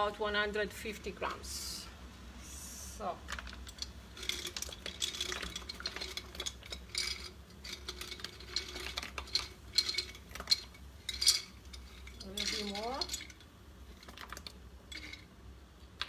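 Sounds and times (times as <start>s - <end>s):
utensil scraping and clinking pot: 3.3s - 15.4s.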